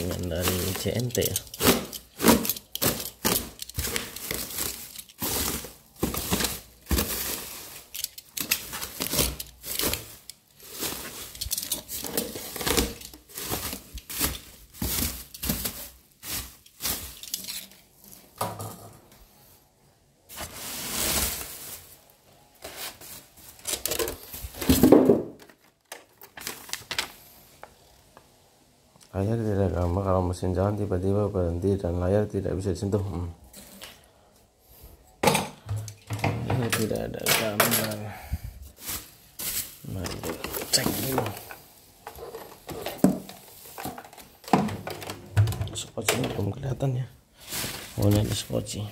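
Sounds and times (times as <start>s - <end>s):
plastic packaging crinkling: 0.0s - 18.4s, 20.3s - 24.8s, 25.4s - 27.4s, 38.6s - 45.8s, 47.4s - 48.9s.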